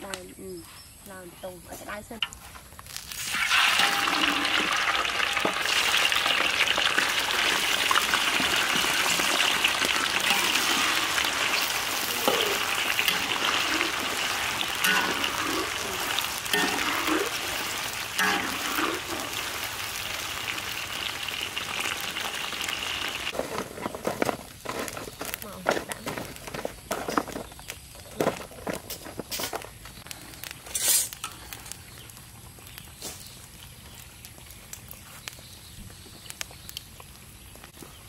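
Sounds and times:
fish deep-frying in hot oil: 2.8 - 38.0.

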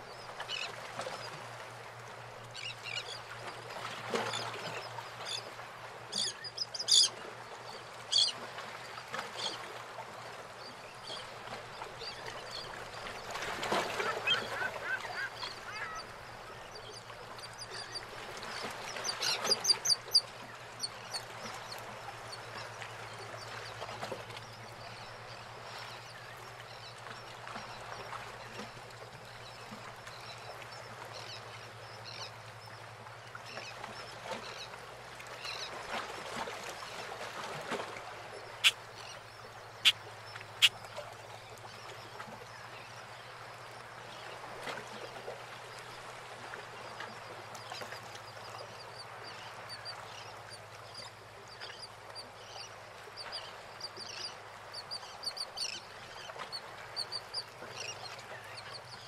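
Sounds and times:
water lapping against boats: 0.0 - 59.0
birds calling: 13.8 - 16.4, 38.5 - 40.9.

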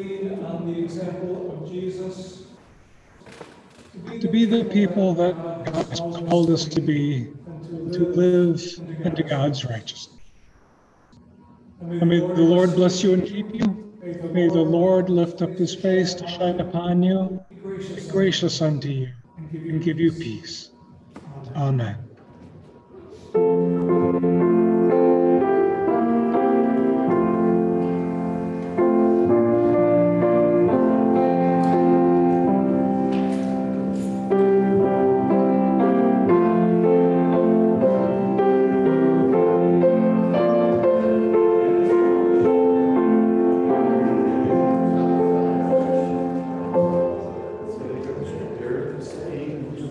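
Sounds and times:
slow keyboard chords: 21.9 - 49.3.

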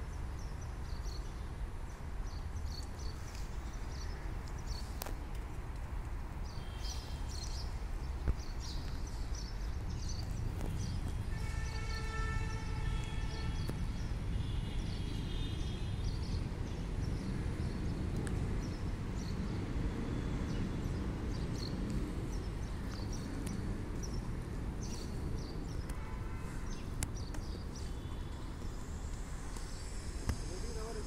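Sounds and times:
birds chirping: 6.3 - 31.0.

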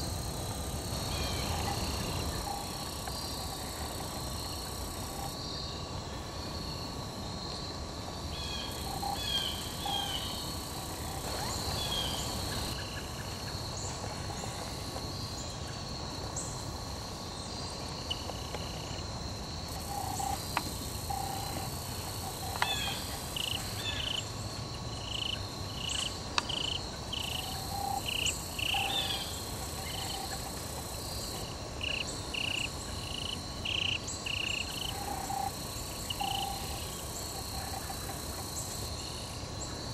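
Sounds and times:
high-pitched insect drone: 0.0 - 5.8, 18.1 - 39.3.

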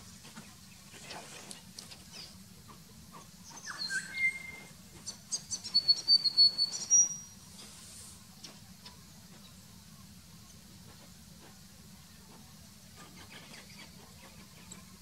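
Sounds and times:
bird calling: 3.4 - 7.2.

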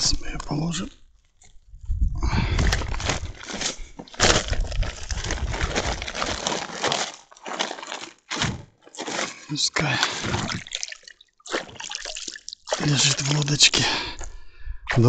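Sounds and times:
sack rustling and knocking: 2.4 - 13.4.

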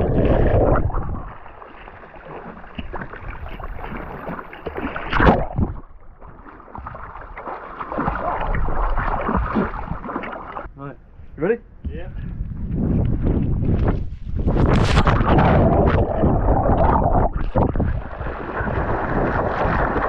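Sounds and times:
underwater rush of bubbles: 0.0 - 10.7, 14.5 - 20.0
water splashing from swimming: 0.0 - 10.7, 14.8 - 20.0.

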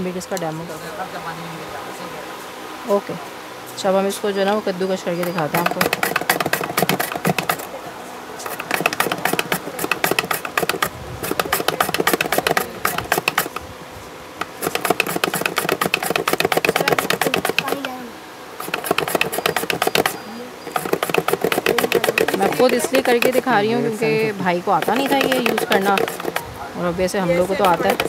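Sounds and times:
carrot scraping on a grater: 5.2 - 7.6, 8.4 - 13.6, 14.4 - 18.0, 18.6 - 23.5, 24.7 - 26.5, 27.4 - 28.0.

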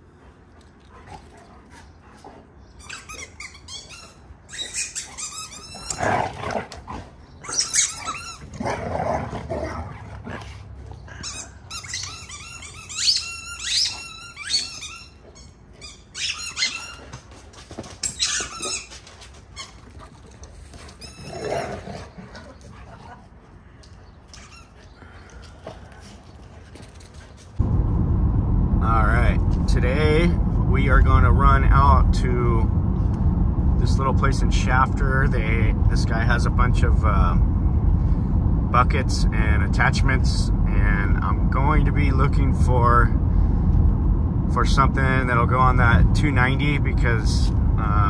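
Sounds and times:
dog whining: 2.8 - 6.2, 7.4 - 8.7, 10.9 - 17.2, 18.0 - 19.8.

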